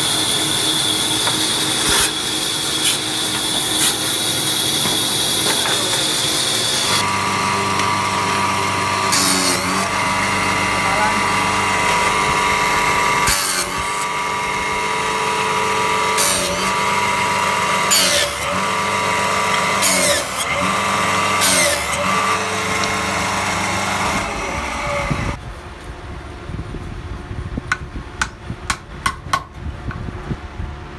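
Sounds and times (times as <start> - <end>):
band saw running: 0.0 - 25.4
wood being cut: 0.0 - 25.4
woodworking machine motor running: 0.0 - 25.4.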